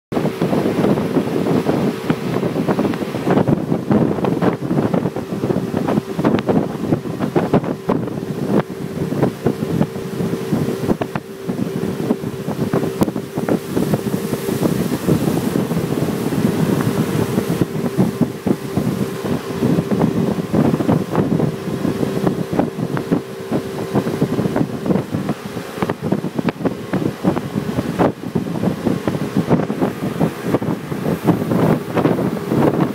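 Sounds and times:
boat engine drone: 0:00.1 - 0:32.9
rushing water: 0:00.1 - 0:32.9
wind buffeting microphone: 0:00.1 - 0:32.9.

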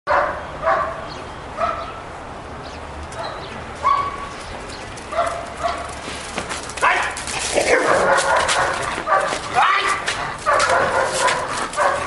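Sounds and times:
dog barking: 0:00.1 - 0:01.0, 0:01.6 - 0:02.0, 0:03.2 - 0:04.3, 0:05.1 - 0:05.9, 0:06.8 - 0:12.0.

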